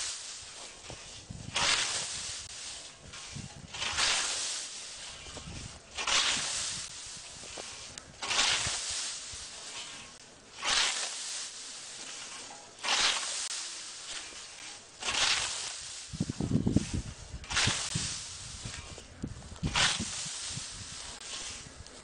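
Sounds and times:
grass rustling: 0.0s - 22.0s
scythe swishing through grass: 0.0s - 22.0s.

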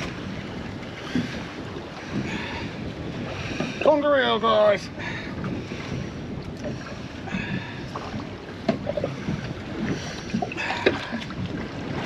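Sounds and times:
water slapping around boat: 0.0s - 12.0s
wind buffeting microphone: 0.0s - 12.0s.

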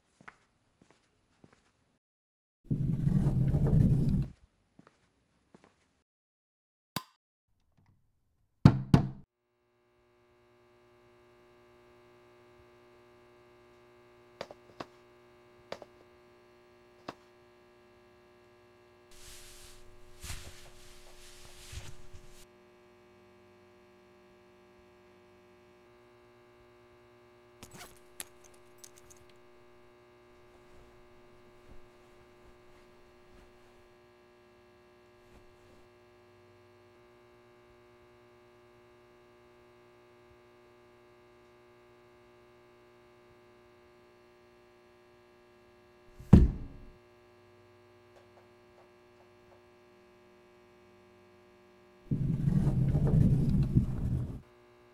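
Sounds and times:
low electrical hum: 9.6s - 54.9s
loud heavy thud: 46.2s - 46.9s.

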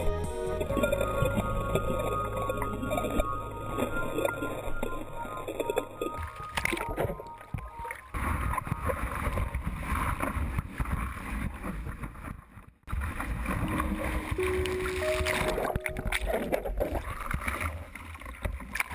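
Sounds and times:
rushing churning water: 12.9s - 18.9s.

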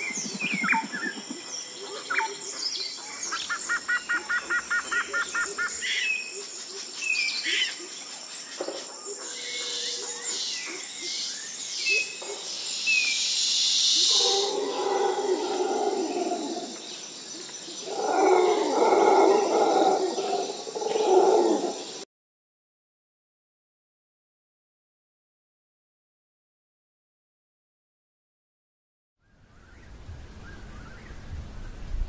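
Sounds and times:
birds chirping and whistling: 0.0s - 6.4s
high insect drone: 0.0s - 22.0s.

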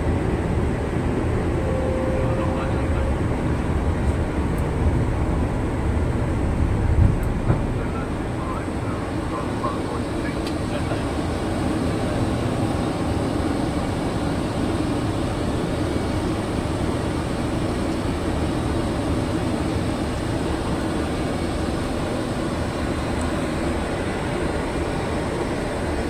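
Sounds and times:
airflow and air-conditioning rushing: 0.0s - 26.0s.

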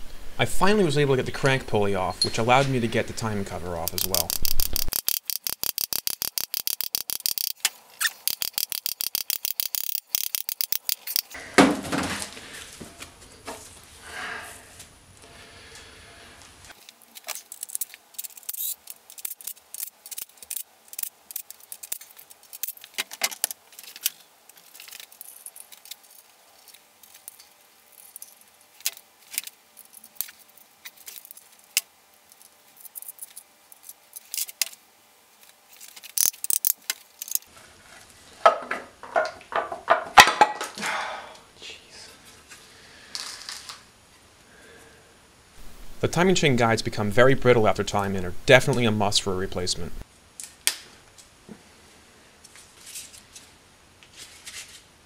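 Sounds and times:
metallic clicks of tools and bolts: 3.9s - 11.4s, 16.8s - 34.8s, 35.8s - 37.5s.

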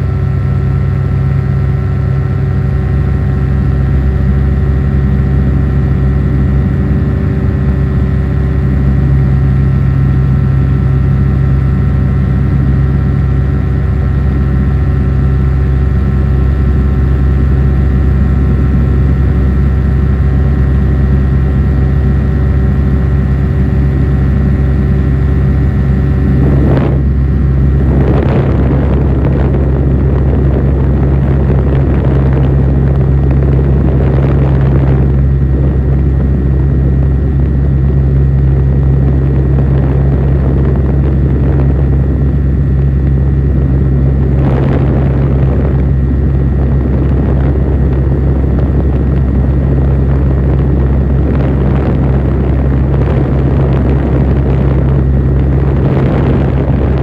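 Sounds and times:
high whine: 0.0s - 57.0s
propeller aircraft engine drone: 0.0s - 57.0s
rushing air noise: 2.6s - 57.0s.

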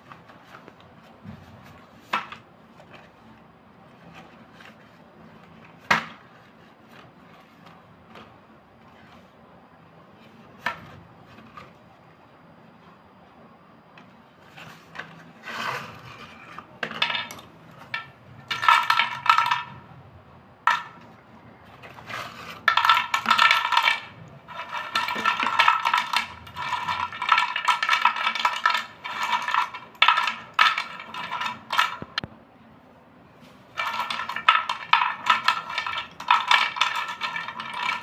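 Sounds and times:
slate pencils clinking in clay bowl: 21.8s - 32.2s, 33.8s - 38.0s.

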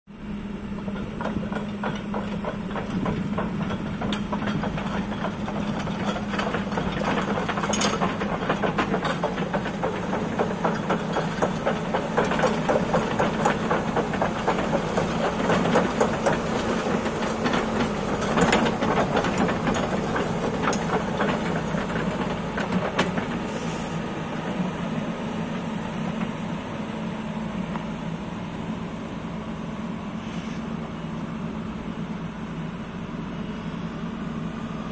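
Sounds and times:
excavator diesel engine drone: 0.1s - 34.9s
fast machine clatter: 0.8s - 23.5s.

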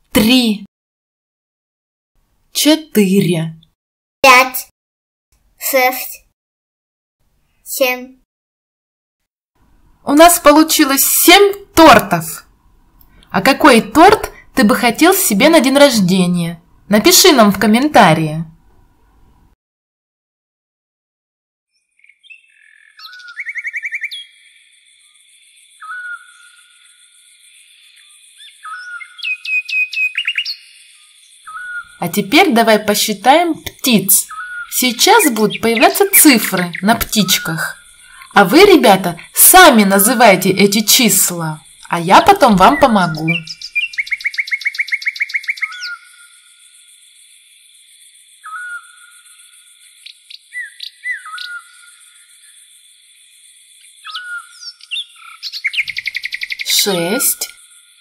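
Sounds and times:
small birds chirping and trilling: 21.7s - 58.0s
bird whistled calls: 22.2s - 24.4s, 25.8s - 26.7s, 28.4s - 32.0s, 34.3s - 34.8s, 42.7s - 46.3s, 48.4s - 49.1s, 50.3s - 51.9s, 54.0s - 56.7s.

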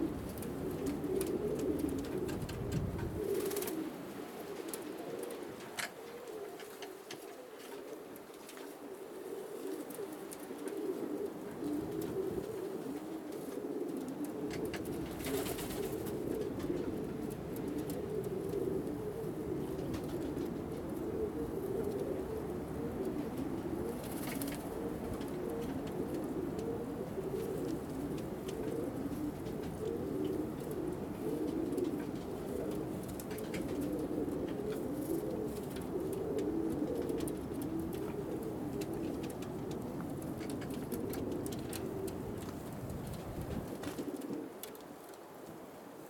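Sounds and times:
pigeons cooing: 0.0s - 46.0s
wing flap: 0.8s - 3.9s, 14.8s - 16.8s.

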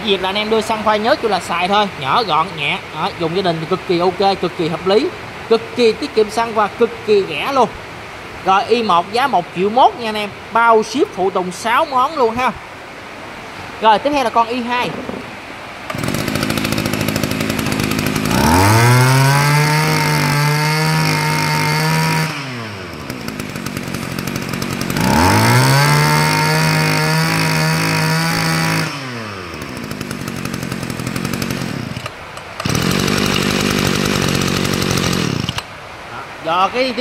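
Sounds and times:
loud rain hissing: 0.0s - 37.0s
brush cutter engine revving: 14.6s - 35.8s.

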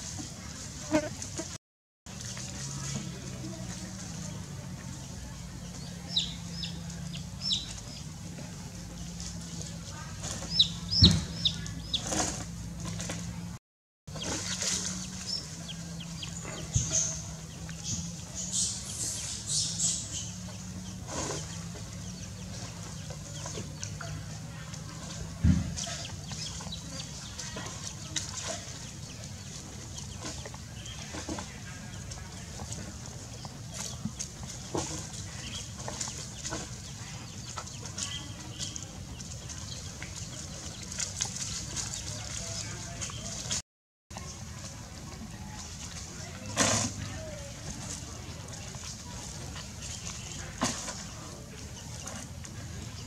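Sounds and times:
chick peeping: 5.6s - 8.1s, 10.2s - 12.1s
rustling dry leaf litter: 14.1s - 43.6s, 44.2s - 53.0s.

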